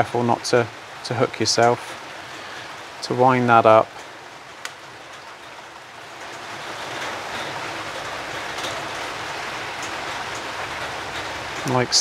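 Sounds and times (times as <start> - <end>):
rain-like hiss: 0.0 - 12.0
faint clicks: 4.0 - 5.3.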